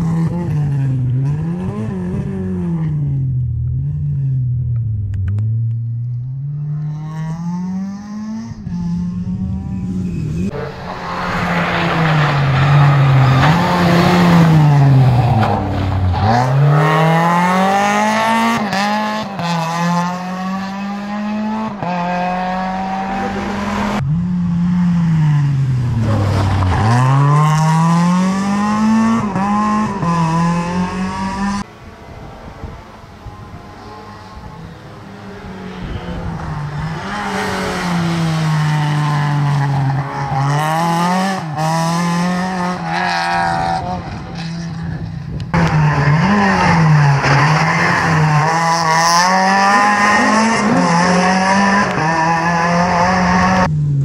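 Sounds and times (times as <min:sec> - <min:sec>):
rally car engine revving: 0:00.0 - 0:54.0.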